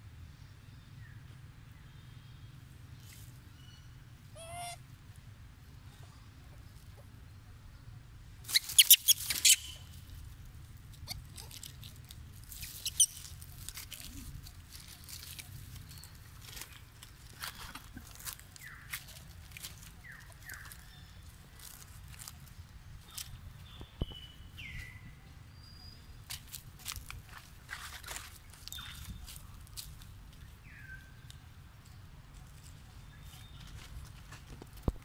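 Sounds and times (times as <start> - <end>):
monkeys rustling dry leaves: 8.5 - 10.3, 11.0 - 23.3
short squeak: 12.5 - 13.3.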